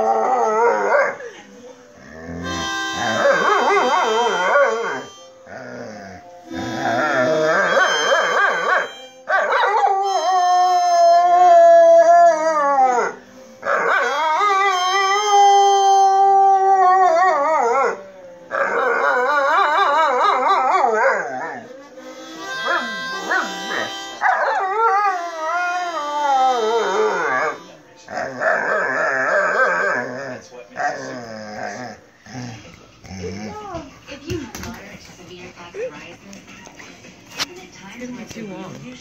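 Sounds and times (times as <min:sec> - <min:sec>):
dog howling: 0:00.0 - 0:01.3, 0:02.0 - 0:32.0
harmonica playing: 0:02.2 - 0:11.3, 0:13.4 - 0:16.6, 0:21.7 - 0:28.0.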